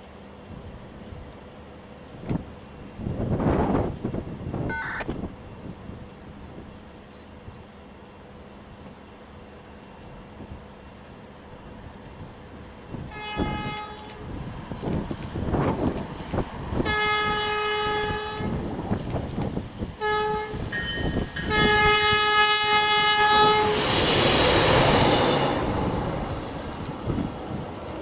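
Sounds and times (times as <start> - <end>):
locomotive rumble and wheels: 0.0 - 28.0
locomotive air horn: 13.1 - 14.2, 16.8 - 18.6, 20.0 - 20.6, 21.4 - 23.8.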